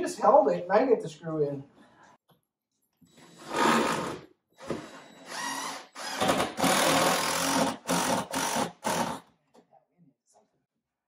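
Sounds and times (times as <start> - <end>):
power drill driving a screw: 3.1 - 9.2.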